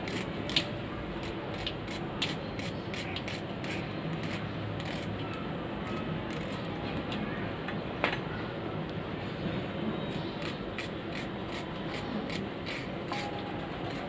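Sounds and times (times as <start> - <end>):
knife cutting onion: 0.0 - 5.2, 10.4 - 14.0
steady background noise: 0.0 - 14.0.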